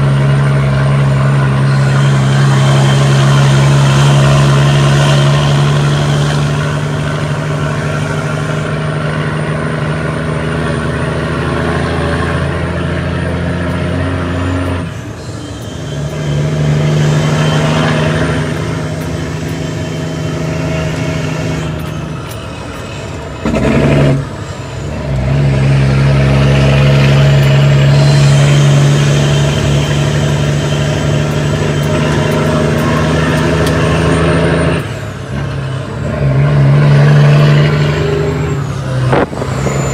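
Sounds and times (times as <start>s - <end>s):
diesel truck engine running: 0.0s - 39.9s.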